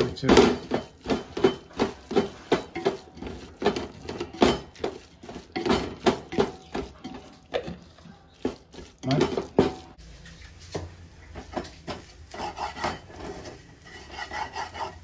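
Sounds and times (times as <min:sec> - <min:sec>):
spoon scraping a cooking pot: 0:00.5 - 0:10.0, 0:11.4 - 0:15.0.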